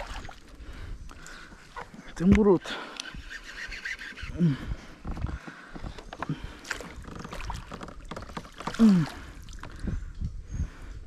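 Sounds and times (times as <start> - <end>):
water sounds: 0.0 - 2.0, 6.1 - 10.0.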